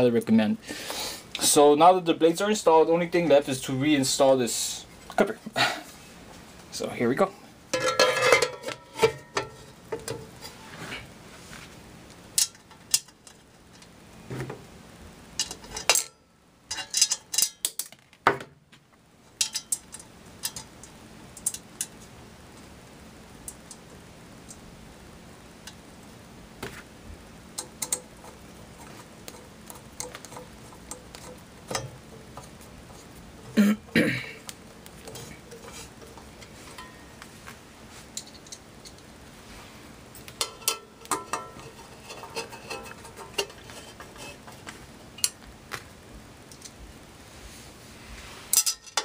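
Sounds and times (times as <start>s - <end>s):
metal clinks and taps: 35.5s - 37.2s.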